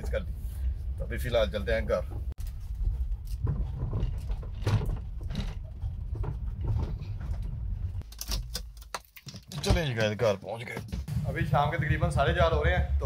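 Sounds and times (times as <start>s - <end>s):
car rumbling on rough road: 0.0s - 8.0s
knocks and rattles over bumps: 1.8s - 11.1s.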